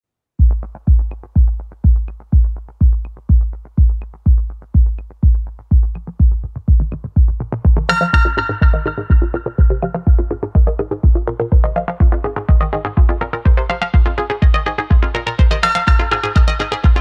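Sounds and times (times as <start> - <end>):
deep kick drum: 0.4 - 17.0
electronic music: 0.4 - 17.0
bright synthesizer melody: 7.8 - 17.0.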